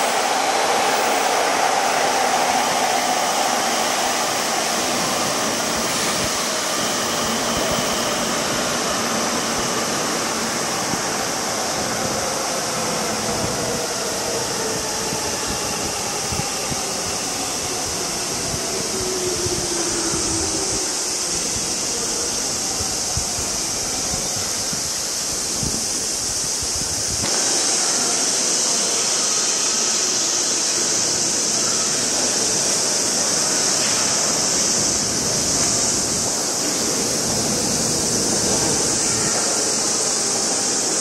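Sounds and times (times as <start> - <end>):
steady rushing hiss: 0.0 - 41.0.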